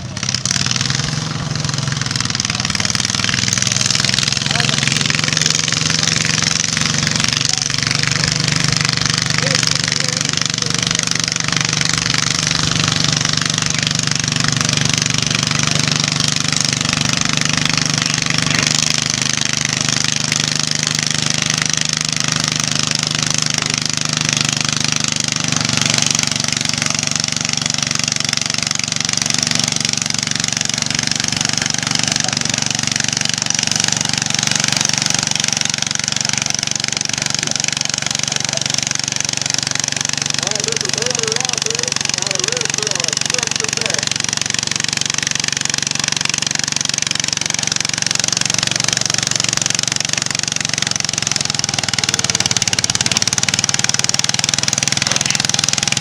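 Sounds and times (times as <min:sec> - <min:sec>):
lawn tractor engine under load: 0:00.0 - 0:56.0.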